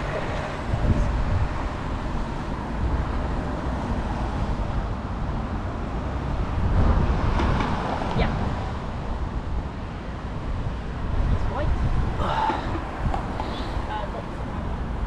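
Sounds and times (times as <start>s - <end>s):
road traffic: 0.0s - 15.0s
wind rumbling on microphone: 0.0s - 15.0s.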